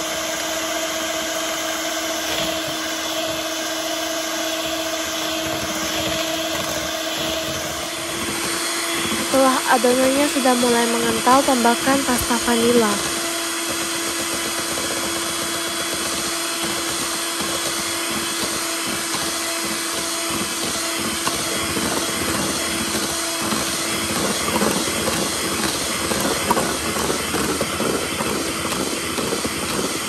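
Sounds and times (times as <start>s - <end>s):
electric hand mixer whipping batter: 0.0s - 30.0s.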